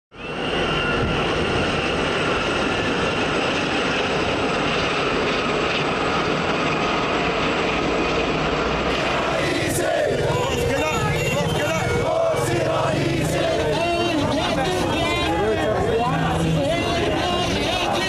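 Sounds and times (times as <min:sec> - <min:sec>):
helicopters flying overhead: 0:00.1 - 0:18.0
faint high whine: 0:00.2 - 0:03.1.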